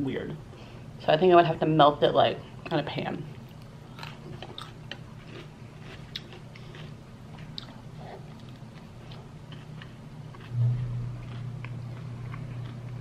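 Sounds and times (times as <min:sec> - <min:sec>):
person chewing food: 0:03.5 - 0:13.0.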